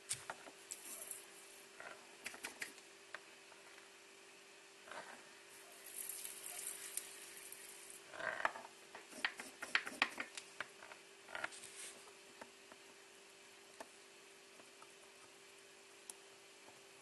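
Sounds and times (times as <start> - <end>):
rustle: 0.0 - 3.9, 4.8 - 8.8, 10.2 - 12.2.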